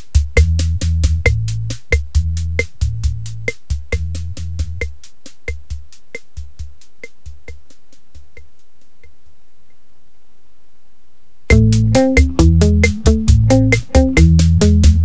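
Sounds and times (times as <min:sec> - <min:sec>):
bass line: 0:00.0 - 0:04.9, 0:11.5 - 0:15.0
electronic music with drum-machine beat: 0:00.0 - 0:09.1, 0:11.5 - 0:15.0.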